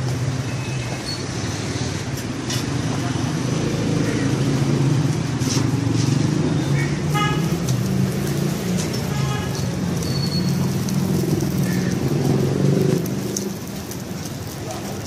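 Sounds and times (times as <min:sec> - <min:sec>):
food frying on a griddle: 0:00.0 - 0:15.0
low rumble of traffic: 0:00.0 - 0:15.0.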